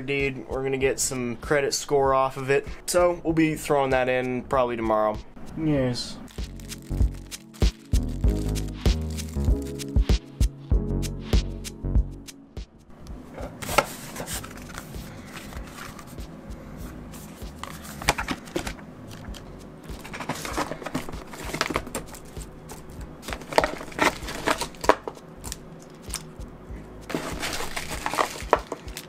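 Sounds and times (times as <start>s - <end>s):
packaging rustling and crinkling: 6.3s - 9.9s, 13.5s - 16.3s, 17.2s - 26.3s, 27.1s - 29.0s.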